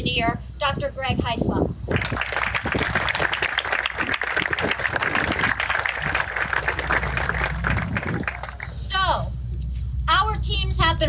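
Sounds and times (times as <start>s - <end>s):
crowd applauding: 1.9s - 8.8s.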